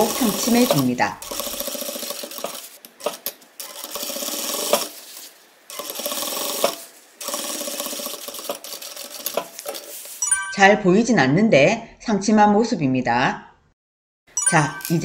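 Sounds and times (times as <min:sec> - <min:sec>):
sewing machine stitching: 0:00.0 - 0:10.0.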